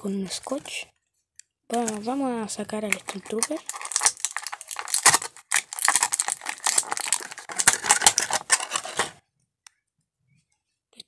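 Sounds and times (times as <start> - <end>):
plastic blister tray crackling: 1.7 - 9.2.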